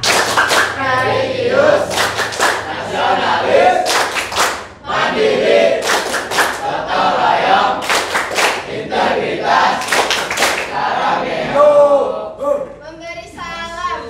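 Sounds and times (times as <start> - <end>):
quick hand claps: 0.0 - 0.8, 1.9 - 2.7, 3.8 - 4.7, 5.8 - 6.6, 7.8 - 8.7, 9.8 - 10.7
students singing together: 0.4 - 12.5.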